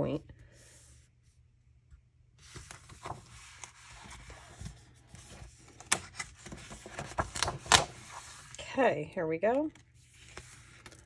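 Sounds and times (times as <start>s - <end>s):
cardstock rustling and sliding: 2.4s - 8.6s, 9.7s - 11.0s.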